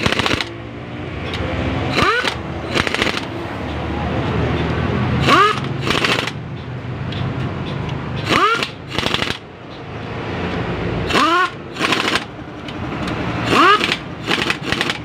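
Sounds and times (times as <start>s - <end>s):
air ratchet whine: 1.2s - 3.3s, 5.2s - 6.4s, 7.8s - 9.4s, 10.5s - 15.0s.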